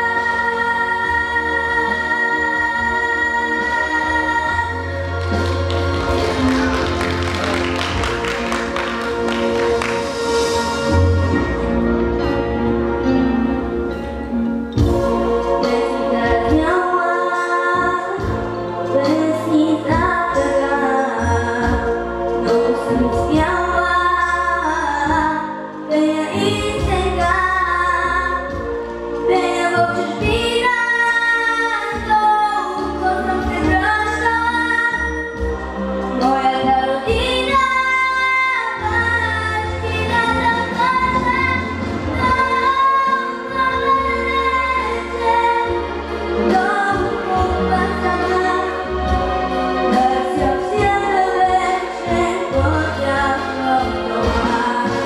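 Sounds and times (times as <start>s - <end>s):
instrumental accompaniment with bass: 0.0s - 55.0s
girl singing into a microphone: 22.8s - 28.6s, 29.3s - 35.2s, 36.2s - 45.8s.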